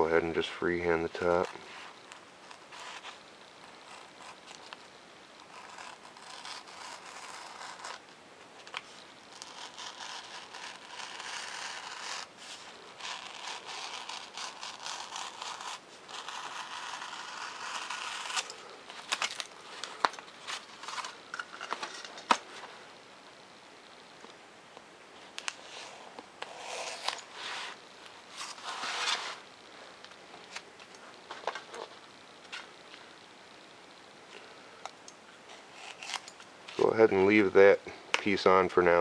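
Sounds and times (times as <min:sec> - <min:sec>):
knife cutting foam sheet: 0:05.5 - 0:08.0, 0:09.3 - 0:21.2, 0:25.6 - 0:29.4, 0:35.7 - 0:36.3.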